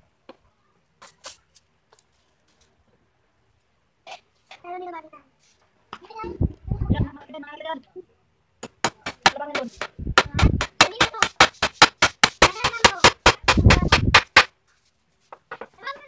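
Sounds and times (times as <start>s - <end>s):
hammer striking wooden frame: 8.6s - 14.6s.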